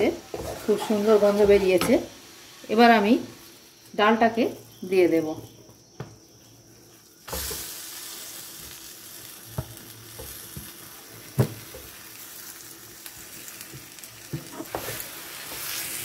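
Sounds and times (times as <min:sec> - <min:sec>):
frying sizzle in a pan: 0:00.0 - 0:16.0
wooden spatula stirring and scraping: 0:00.2 - 0:01.9, 0:14.4 - 0:16.0.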